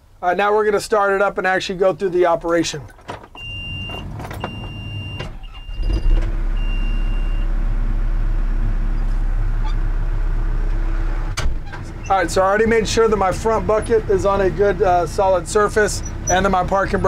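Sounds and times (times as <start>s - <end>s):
diesel engine cranking and idling: 2.5s - 17.0s
high-pitched warning beeps: 3.4s - 7.5s.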